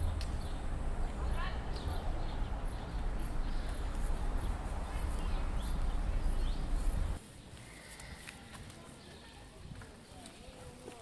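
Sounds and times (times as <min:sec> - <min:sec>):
low rumble: 0:00.0 - 0:07.2
birds chirping: 0:00.0 - 0:09.5.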